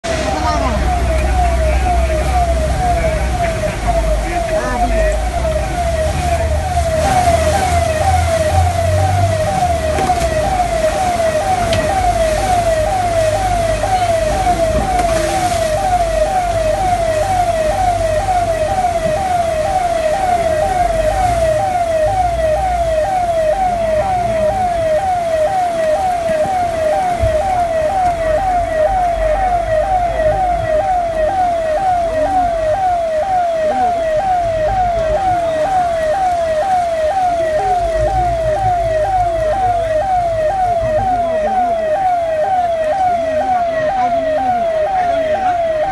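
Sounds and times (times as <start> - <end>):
siren-like alarm tone: 0.0 - 45.9.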